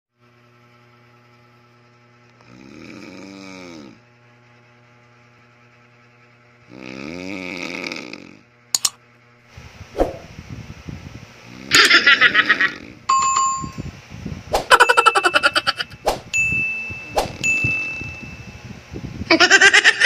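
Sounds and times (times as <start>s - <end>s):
faint hum: 0.2s - 20.0s
man snoring: 2.4s - 4.0s, 6.6s - 8.4s
sharp clicks: 8.8s - 9.0s.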